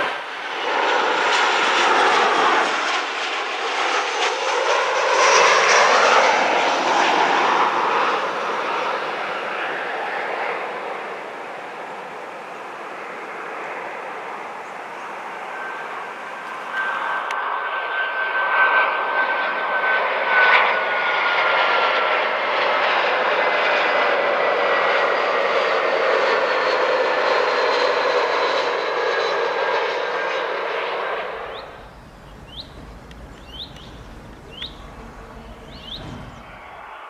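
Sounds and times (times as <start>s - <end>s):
jet engines flying past: 0.0s - 37.0s
bird chirps: 31.4s - 37.0s
low rumble: 31.4s - 37.0s.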